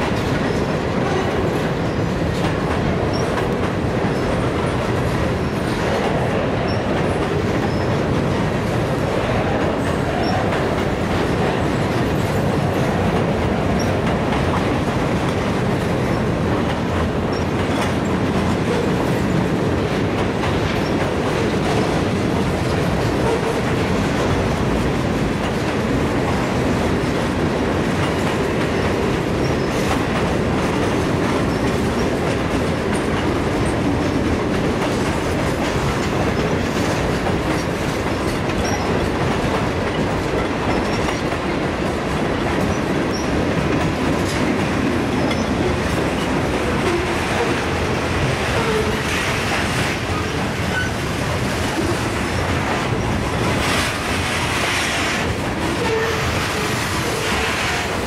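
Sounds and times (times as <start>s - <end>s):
freight train wheels rumbling: 0.0s - 58.0s.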